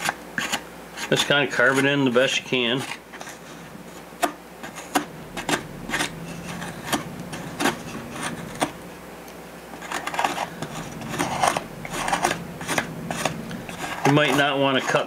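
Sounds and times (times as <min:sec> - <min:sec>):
knife scraping wood: 0:09.8 - 0:15.0.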